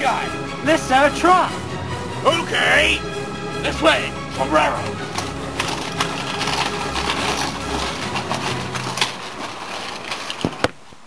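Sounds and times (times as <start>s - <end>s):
footsteps on gravel: 4.3s - 10.8s
clicks and rustling: 4.8s - 11.0s.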